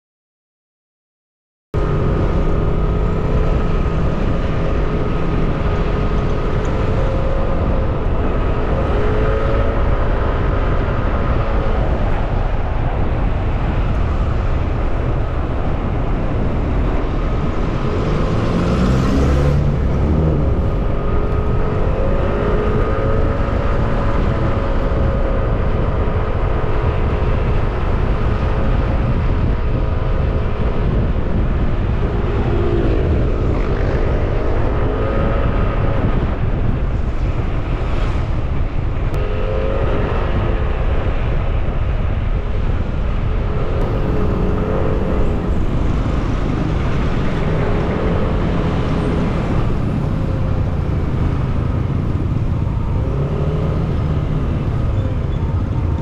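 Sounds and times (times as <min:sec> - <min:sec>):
wind rush on camera: 0:01.8 - 0:56.0
vehicle passing close by: 0:15.1 - 0:29.5.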